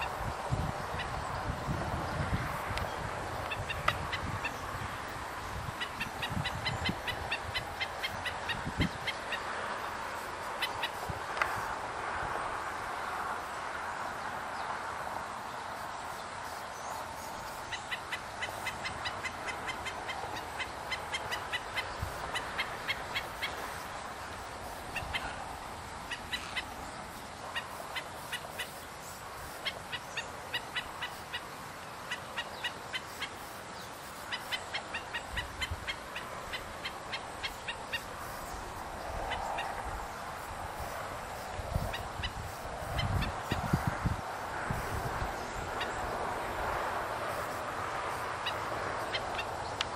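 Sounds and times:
background noise: 0.0 - 49.9
bird alarm calls: 5.8 - 9.4, 17.7 - 23.8.

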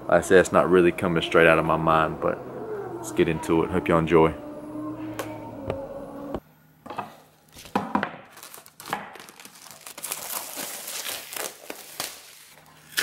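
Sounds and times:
plastic shrink wrap crackling: 7.5 - 13.0.

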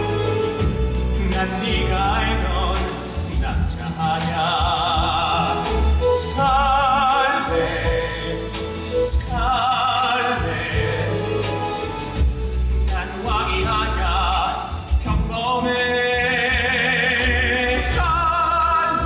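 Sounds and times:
instrumental accompaniment: 0.0 - 19.0
man singing with vibrato: 0.0 - 19.0.

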